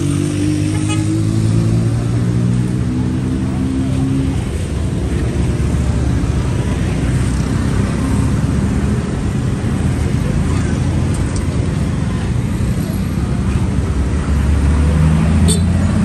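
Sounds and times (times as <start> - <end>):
traffic engine rumble: 0.0 - 16.0.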